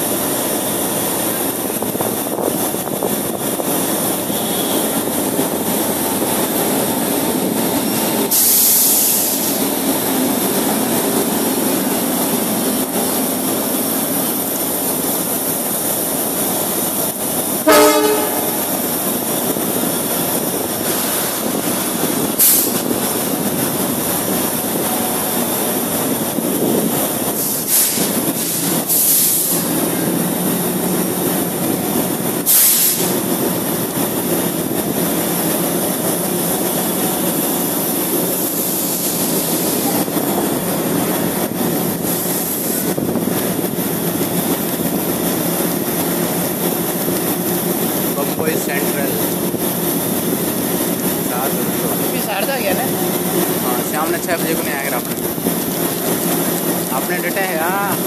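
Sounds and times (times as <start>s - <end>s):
train wheels rumbling and rattling: 0.0s - 58.0s
train horn blast: 17.6s - 18.8s.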